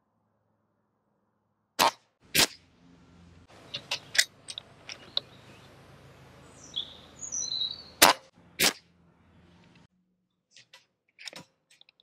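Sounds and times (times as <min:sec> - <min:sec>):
air rifle shot: 0:01.8 - 0:02.6, 0:08.0 - 0:08.9
birds chirping: 0:03.5 - 0:08.3.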